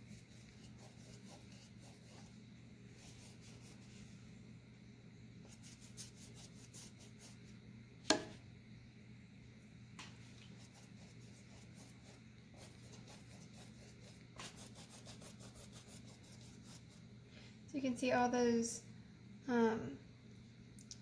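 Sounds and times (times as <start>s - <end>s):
paintbrush rubbing on canvas: 0.0s - 4.1s, 5.4s - 7.5s, 10.4s - 17.0s.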